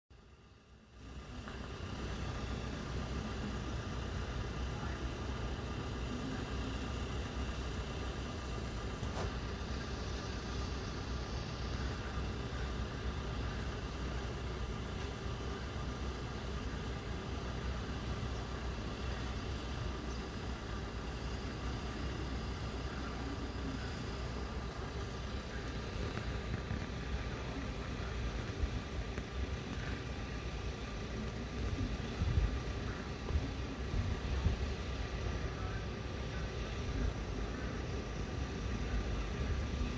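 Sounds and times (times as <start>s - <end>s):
distant road traffic hum: 0.1s - 39.9s.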